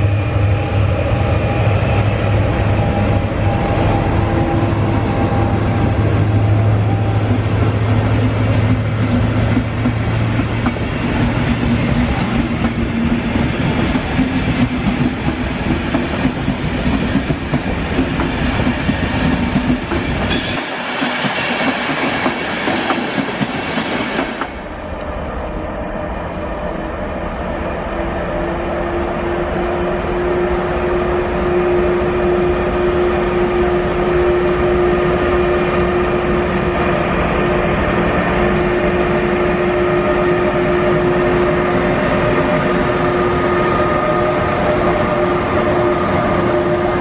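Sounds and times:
locomotive engine hum: 0.0 - 20.3, 24.5 - 47.0
train wheels clattering over rails: 4.8 - 24.6.

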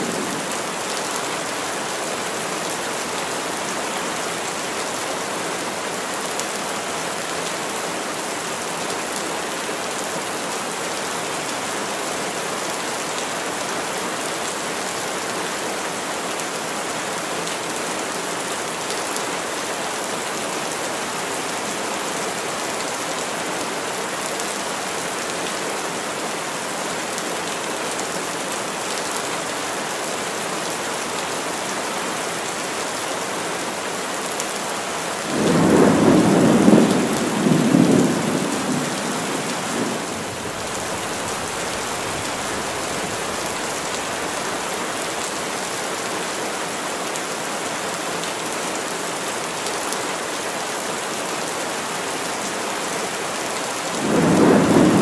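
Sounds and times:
heavy rain falling: 0.0 - 55.0
thunder rumbling: 35.3 - 43.7, 54.0 - 55.0.

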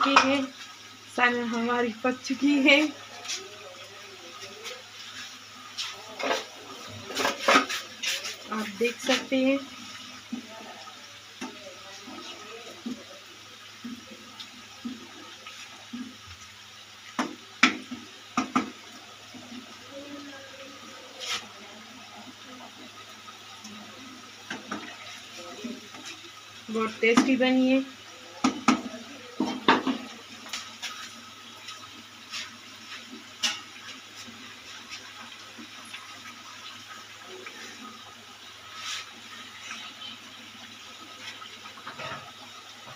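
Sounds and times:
liquid sloshing in a pan: 4.3 - 10.6
spatula knocking against pan: 17.2 - 18.8, 28.4 - 30.0.

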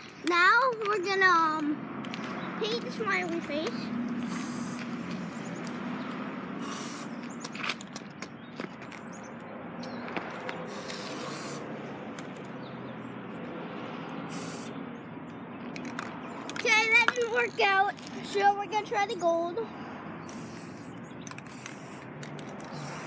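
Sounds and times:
spray paint can hissing: 2.8 - 5.8, 6.6 - 7.6, 10.6 - 11.7, 14.3 - 14.8, 20.2 - 23.0.

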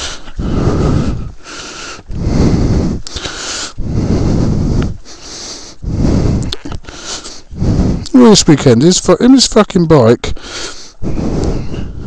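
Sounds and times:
person breathing heavily: 0.0 - 8.4, 10.3 - 12.0.

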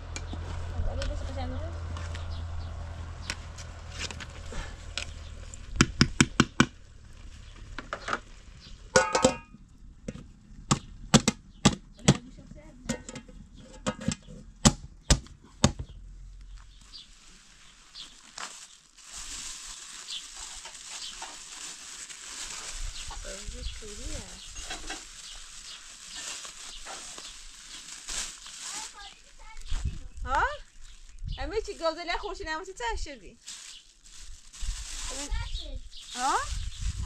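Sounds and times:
ladle striking metal pot: 9.0 - 9.5
pot lid clanking: 9.0 - 9.5.

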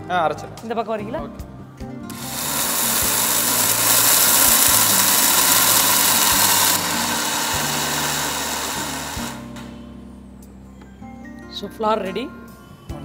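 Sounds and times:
mixer grinder grinding grain: 2.1 - 9.5.

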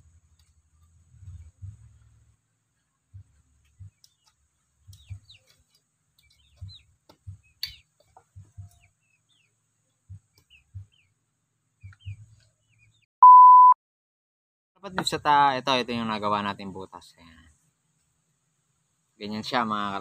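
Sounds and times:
faint bird chirps: 2.8 - 13.8
high electronic test-tone beep: 13.2 - 13.8.

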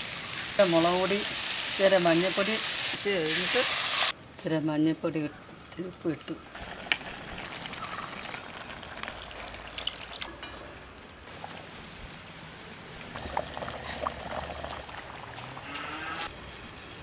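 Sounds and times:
liquid pouring and splashing: 6.6 - 10.3, 13.0 - 15.7.

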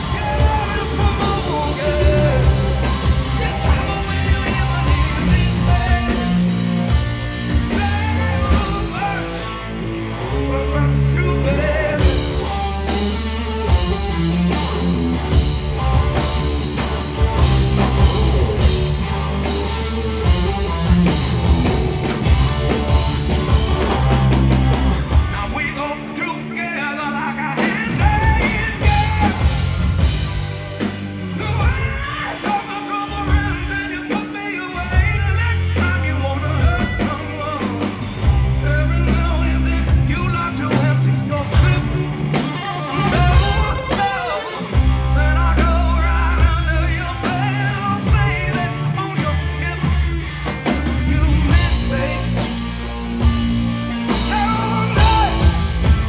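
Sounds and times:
person singing: 0.0 - 9.6, 10.2 - 14.8, 25.1 - 30.2, 31.2 - 53.3, 54.0 - 56.0
bass: 0.0 - 56.0
distorted electric guitar: 0.0 - 56.0
drums: 0.0 - 56.0.

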